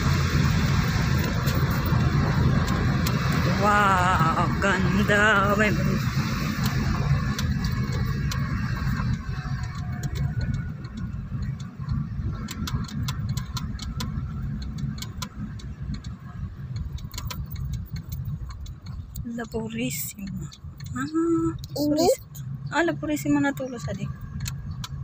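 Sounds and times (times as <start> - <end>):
car engine and road rumble: 0.0 - 25.0.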